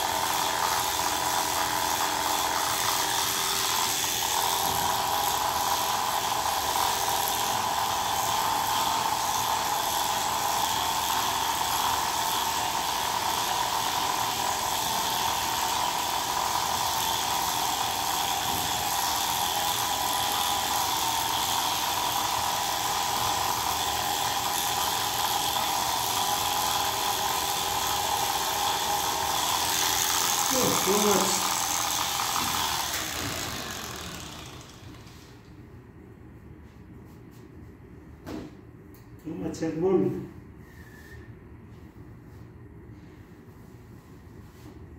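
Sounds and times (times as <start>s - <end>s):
electric clippers buzzing: 0.0s - 35.3s.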